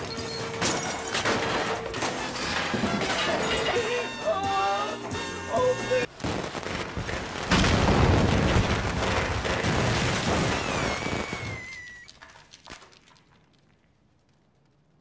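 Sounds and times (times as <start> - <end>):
falling whistle: 10.4 - 12.2.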